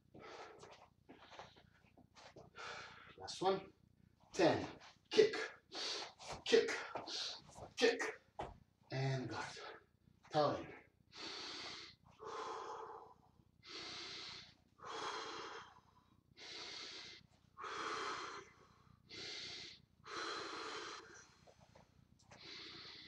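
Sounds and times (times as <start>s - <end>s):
man breathing deeply: 0.1s - 1.6s, 2.5s - 3.2s, 5.4s - 6.2s, 11.1s - 21.6s, 22.4s - 23.0s.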